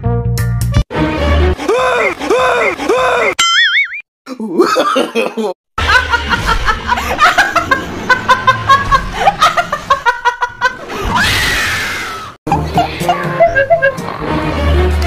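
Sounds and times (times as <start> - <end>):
woman laughing hard: 4.6 - 11.1, 12.5 - 14.1.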